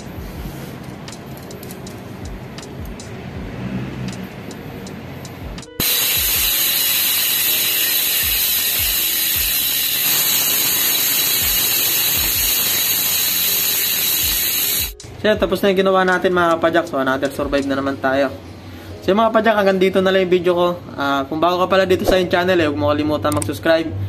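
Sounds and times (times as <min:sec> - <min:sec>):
bicycle freehub buzzing: 0:05.6 - 0:15.0.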